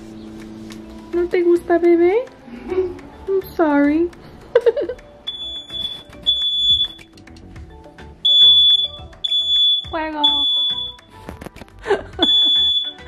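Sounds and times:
smoke alarm beeping: 5.3s - 7.1s, 8.2s - 11.1s, 12.2s - 13.0s.

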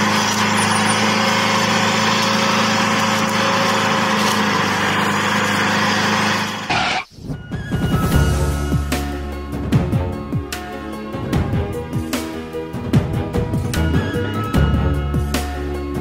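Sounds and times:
small motor humming: 0.0s - 6.8s.

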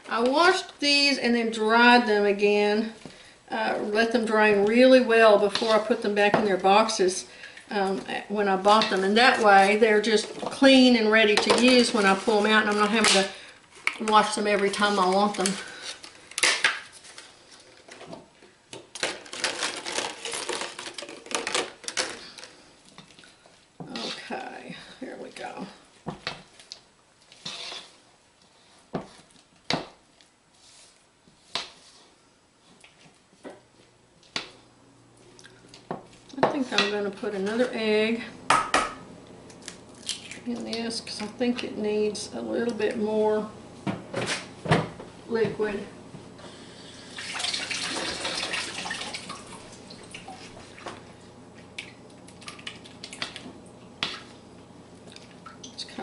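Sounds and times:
spatula scraping batter: 27.2s - 29.5s.

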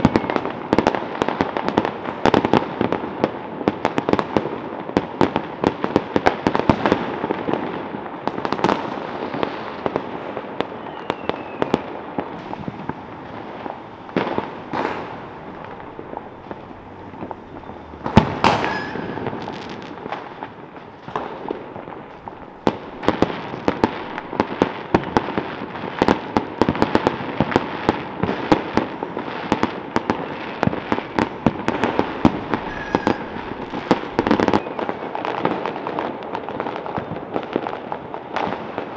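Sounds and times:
fireworks crackling and popping: 0.0s - 38.9s
loud firework bang: 11.1s - 27.5s, 29.6s - 35.9s.

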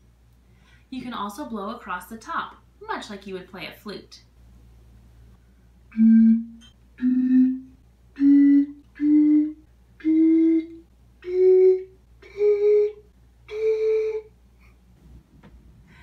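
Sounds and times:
breathy bottle hooting notes: 5.9s - 14.3s.

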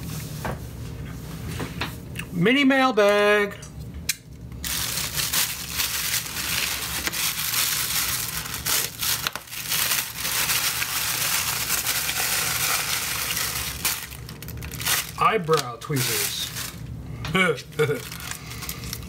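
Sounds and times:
plastic bag crinkling: 4.6s - 17.0s, 17.6s - 19.0s.

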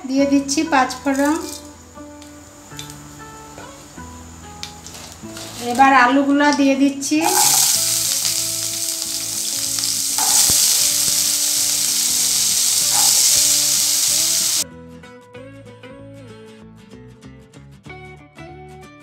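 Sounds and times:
soft background music: 0.0s - 13.8s
potatoes sizzling in hot oil: 0.9s - 6.1s, 7.2s - 14.6s.

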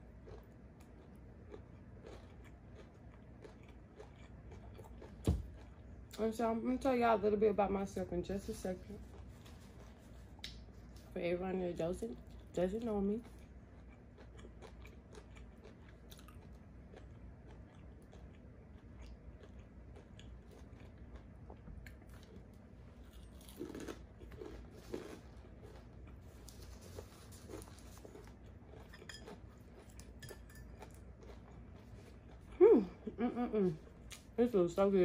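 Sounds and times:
person chewing: 0.0s - 6.2s, 13.2s - 34.3s.

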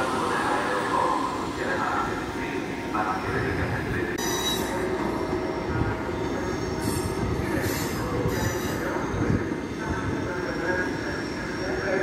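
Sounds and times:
train rumbling on rails: 0.0s - 12.0s
steel wheels squealing: 4.2s - 4.8s, 6.2s - 9.8s.

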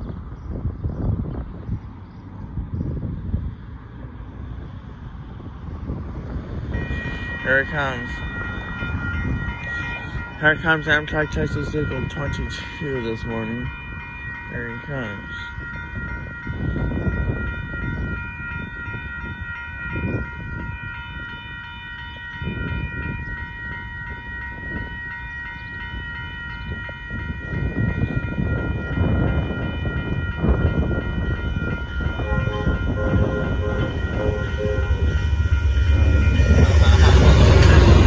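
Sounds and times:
diesel train rumbling: 0.0s - 38.0s
railroad crossing bells ringing: 3.2s - 38.0s
train horn blasts: 6.7s - 18.2s, 30.0s - 38.0s.

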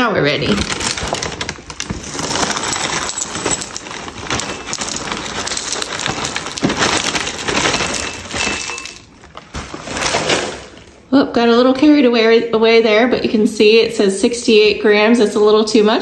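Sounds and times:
cereal pouring into ceramic bowl: 0.6s - 9.0s.

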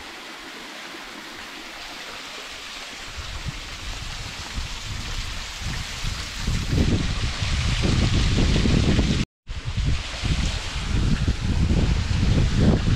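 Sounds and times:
creek water rushing: 0.0s - 8.7s
wind rumbling on microphone: 3.0s - 12.9s.

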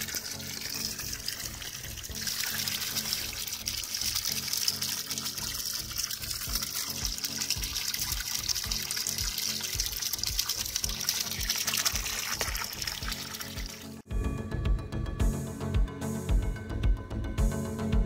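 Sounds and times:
stream trickling over rock: 0.0s - 14.0s
background music with steady beat: 0.0s - 18.0s.

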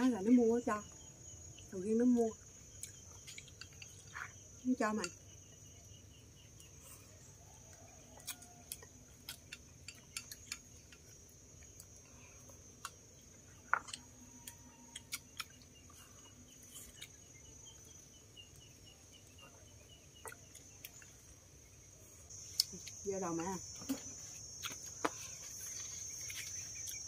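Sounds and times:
high insect drone: 0.0s - 27.0s.

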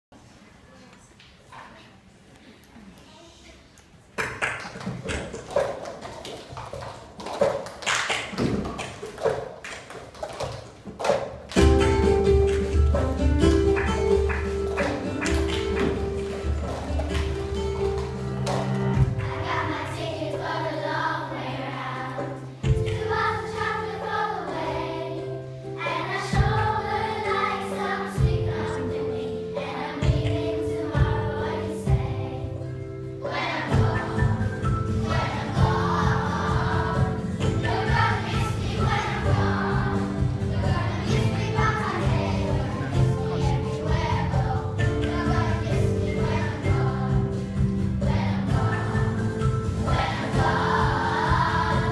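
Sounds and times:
children singing together: 11.6s - 51.9s.

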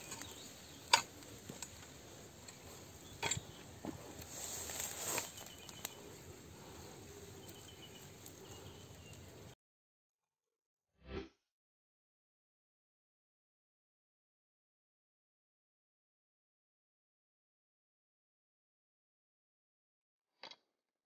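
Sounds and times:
metal tool striking stony soil: 0.0s - 1.7s, 3.1s - 3.6s
soil crumbling and rustling: 0.0s - 9.3s.

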